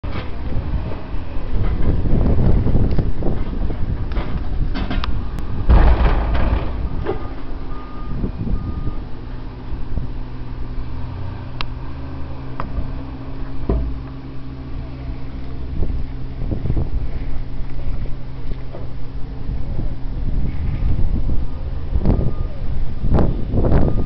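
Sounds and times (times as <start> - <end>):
diesel engine running: 0.0 - 24.0
short beeps: 6.2 - 9.0.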